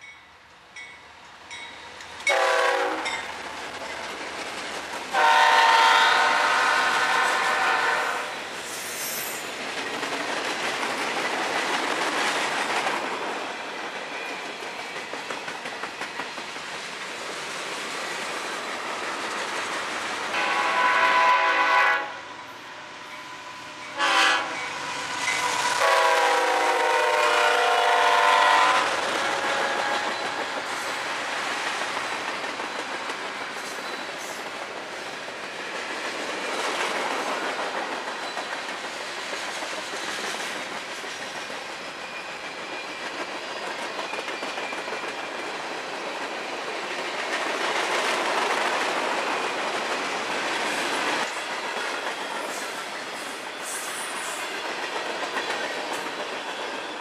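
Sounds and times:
train wheels clicking over rail joints: 1.5s - 5.6s, 8.5s - 20.4s, 28.0s - 57.0s
locomotive air horn: 2.3s - 3.1s, 5.1s - 8.3s, 20.3s - 22.2s, 24.0s - 24.6s, 25.8s - 30.1s.

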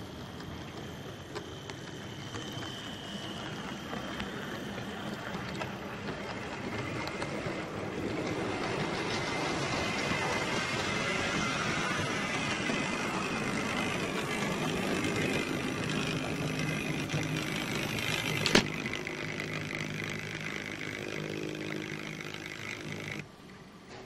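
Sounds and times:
model train motor whine: 0.0s - 23.3s.

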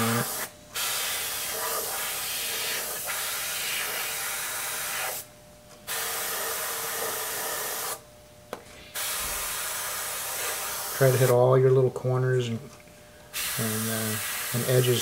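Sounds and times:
airbrush hissing: 0.0s - 5.3s, 5.9s - 8.0s, 8.9s - 11.4s, 13.3s - 15.0s.

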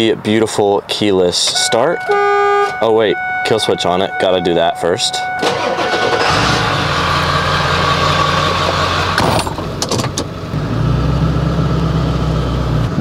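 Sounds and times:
diesel engine starting and idling: 5.1s - 13.0s.

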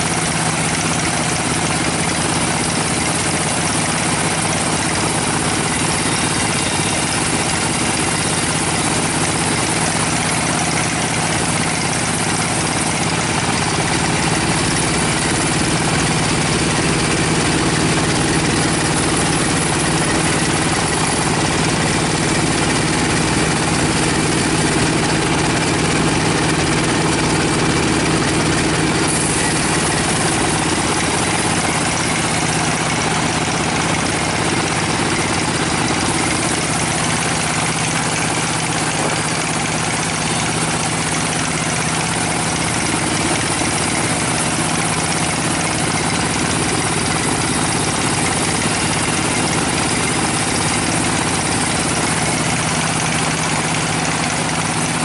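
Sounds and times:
band saw cutting log: 11.3s - 40.1s.

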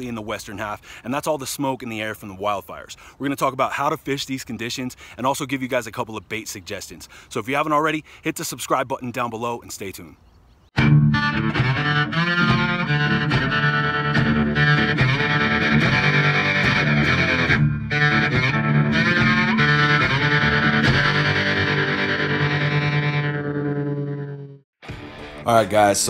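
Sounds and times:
distorted electric guitar rock: 10.8s - 25.4s.

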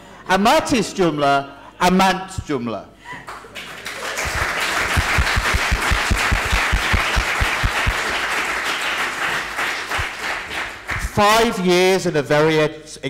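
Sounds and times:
audience applauding: 3.2s - 11.3s.

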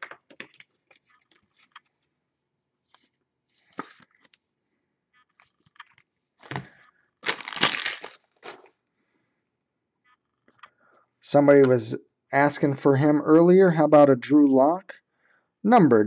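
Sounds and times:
plastic card sleeves crinkling: 0.0s - 2.1s, 5.1s - 8.8s.

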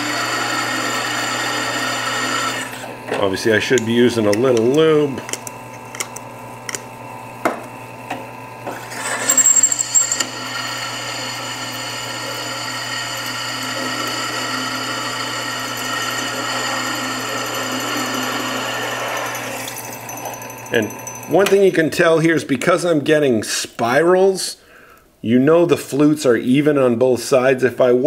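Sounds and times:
drill press humming: 0.0s - 21.7s.

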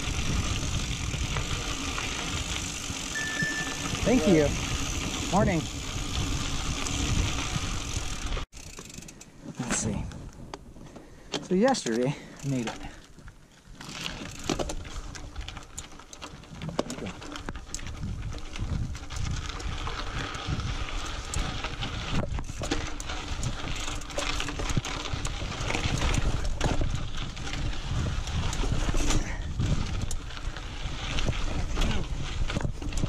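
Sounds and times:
wind on microphone: 0.0s - 8.4s, 17.8s - 22.7s, 24.6s - 33.0s
bike clicking and clunking: 0.0s - 33.0s.

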